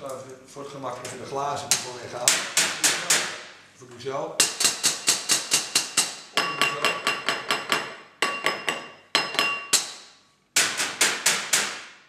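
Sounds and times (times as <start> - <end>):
glass ringing: 6.3 - 9.9
wine glass knocking on counter: 6.4 - 9.7.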